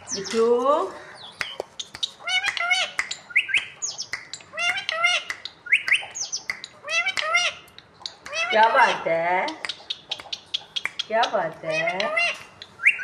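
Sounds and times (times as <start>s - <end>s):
parrot high-pitched calls: 1.1s - 13.0s
sharp clicks: 1.4s - 8.4s, 9.5s - 11.4s.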